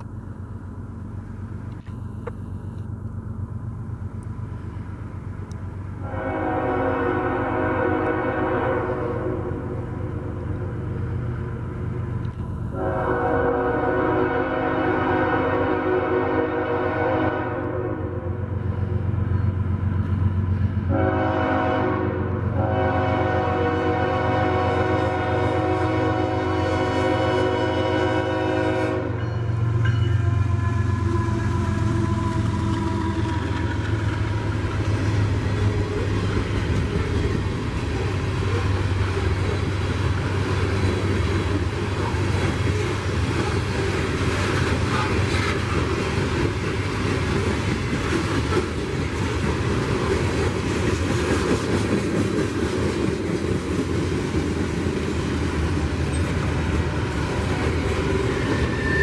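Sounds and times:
freight train rumble and wheel clatter: 0:00.0 - 0:59.0
locomotive air horn chord: 0:06.0 - 0:09.7, 0:12.7 - 0:18.4, 0:20.9 - 0:34.5.

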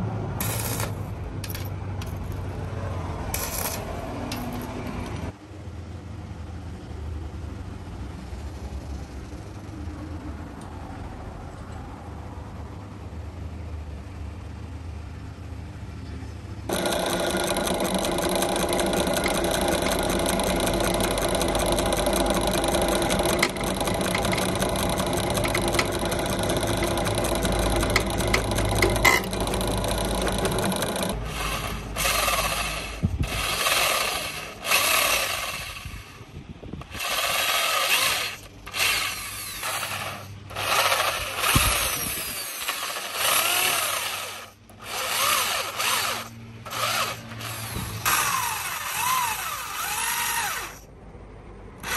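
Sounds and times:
drill press cutting steel: 0:16.7 - 0:36.2, 0:36.8 - 0:50.8
electric drill boring into wood: 0:16.7 - 0:36.2, 0:36.8 - 0:50.8.

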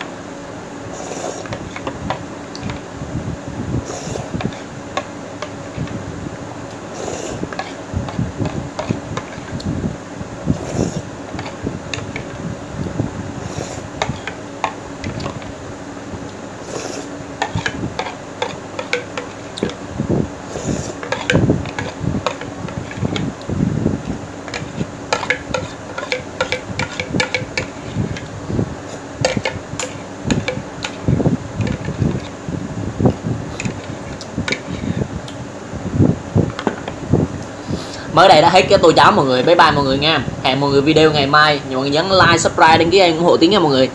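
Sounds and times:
electric fan hum: 0:00.0 - 0:43.9
slurping and chewing: 0:06.9 - 0:07.8, 0:16.6 - 0:19.7.

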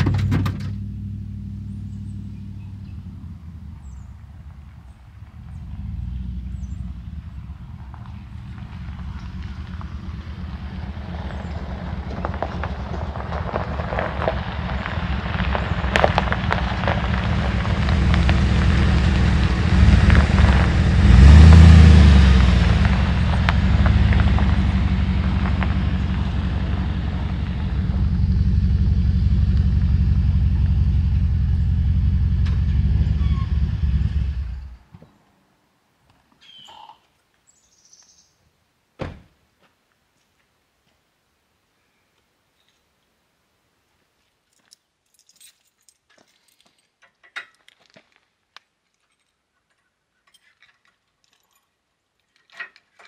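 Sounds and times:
sharp thump: 0:00.0 - 0:00.8, 0:39.0 - 0:39.3
pickup engine running: 0:00.0 - 0:34.8
tyres rolling over gravel: 0:04.4 - 0:34.7, 0:44.5 - 0:53.0.

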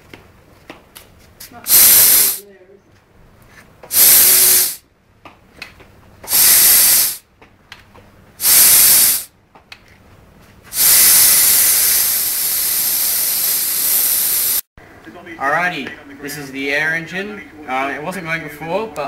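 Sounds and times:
compressed air hissing: 0:01.7 - 0:02.4, 0:03.9 - 0:04.8, 0:06.2 - 0:07.2, 0:08.4 - 0:09.3, 0:10.7 - 0:14.7.

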